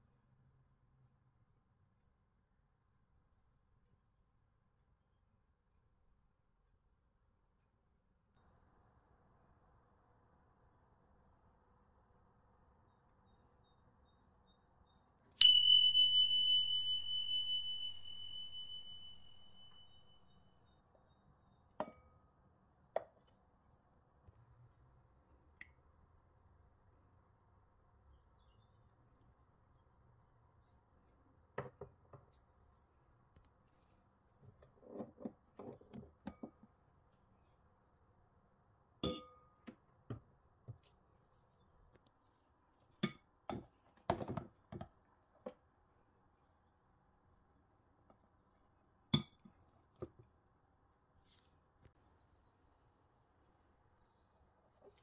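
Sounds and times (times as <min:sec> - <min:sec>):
high ringing tone: 0:15.4 - 0:20.5.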